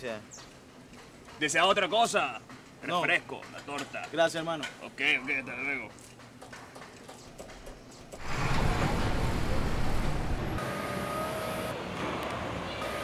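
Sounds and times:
city street traffic rumble: 7.2s - 13.0s.

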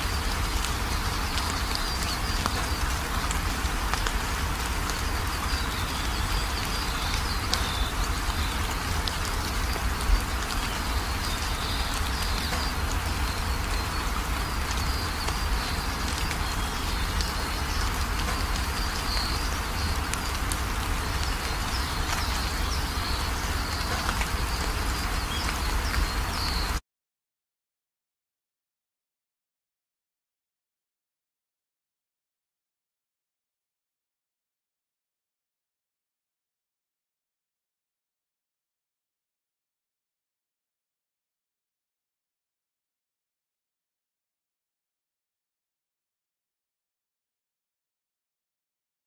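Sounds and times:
rain-like background noise: 0.0s - 26.8s.

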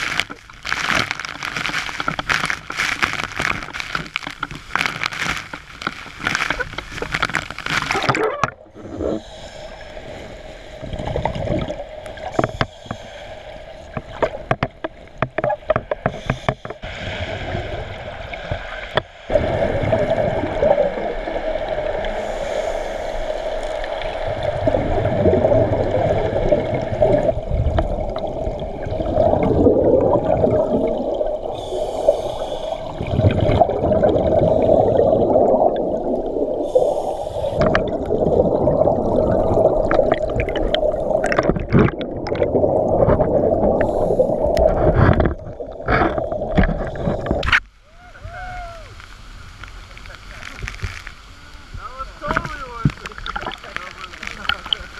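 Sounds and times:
water churning underwater: 0.0s - 54.9s.

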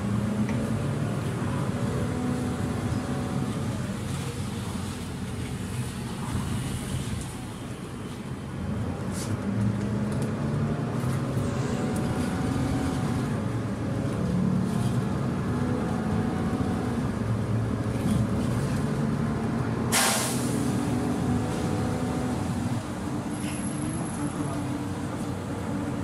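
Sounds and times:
bus engine running: 0.0s - 26.0s
road rumble: 0.0s - 26.0s
compressed air hiss: 19.9s - 20.7s.

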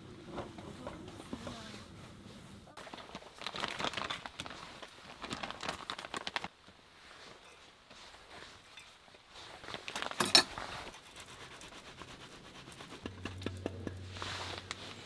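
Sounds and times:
plastic bag crinkling: 2.8s - 6.5s, 9.7s - 10.2s.

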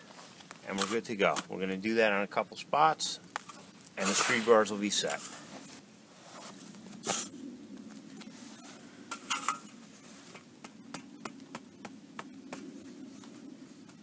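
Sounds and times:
screed bar scraping sand and gravel: 0.1s - 2.2s, 3.4s - 7.4s.

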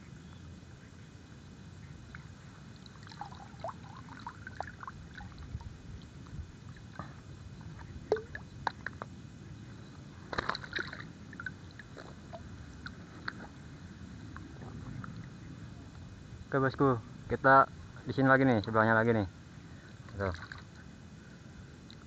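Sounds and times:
water sloshing and splashing: 2.1s - 9.1s, 10.2s - 13.6s, 20.0s - 20.9s.

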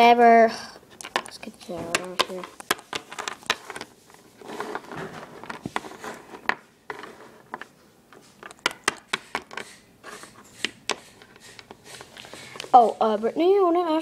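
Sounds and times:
soft rustling: 0.8s - 8.5s.

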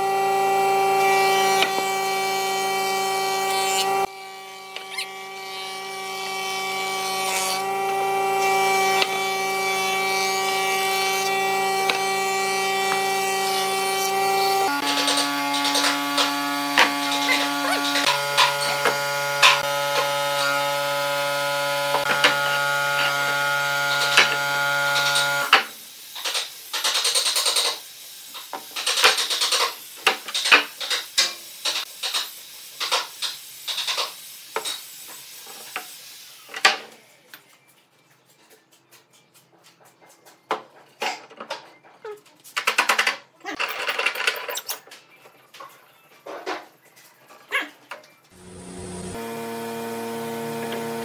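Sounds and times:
electrical buzz: 48.4s - 51.0s.

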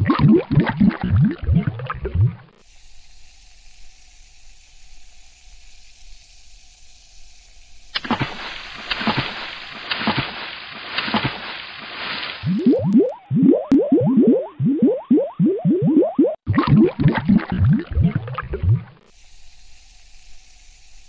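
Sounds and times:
water splashing and bubbling: 0.0s - 2.6s, 7.9s - 19.1s
fizzing bubbles: 0.0s - 2.7s, 7.6s - 19.1s.

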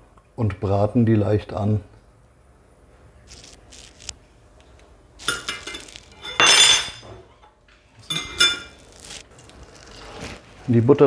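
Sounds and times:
glass jars clinking: 5.3s - 7.1s, 8.0s - 8.8s.

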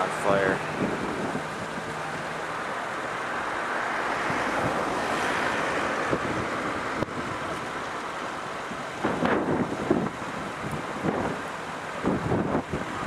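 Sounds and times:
brush fire rushing: 0.0s - 13.0s
faint fire crackles: 0.0s - 13.0s
wind: 0.0s - 13.0s.

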